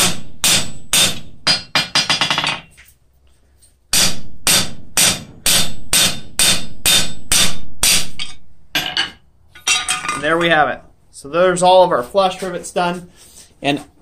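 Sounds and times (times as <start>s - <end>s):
hammer striking rivets on anvil: 0.0s - 2.7s, 3.9s - 10.2s.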